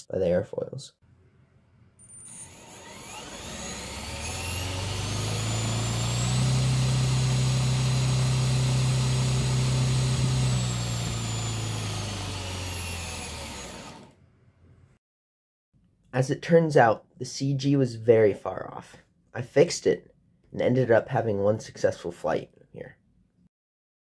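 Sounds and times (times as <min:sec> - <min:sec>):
rotor motor hum and whine: 0:02.4 - 0:14.1.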